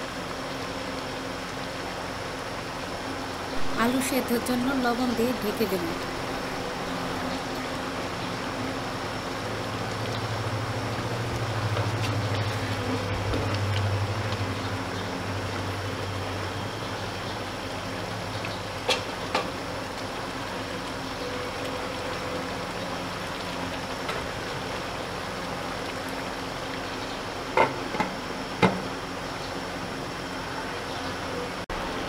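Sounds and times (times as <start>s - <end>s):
low hum: 0.0s - 18.8s.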